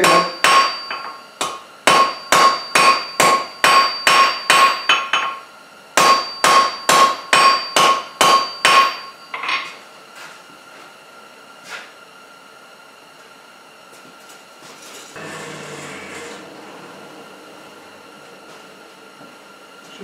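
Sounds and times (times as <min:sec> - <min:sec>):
hammer striking steel on anvil: 0:00.0 - 0:05.4, 0:06.0 - 0:09.8.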